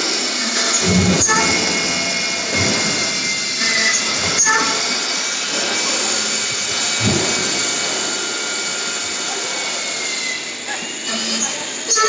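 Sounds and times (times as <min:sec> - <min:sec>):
machine spindle whine: 0:00.0 - 0:12.0
dull thump: 0:00.8 - 0:04.8.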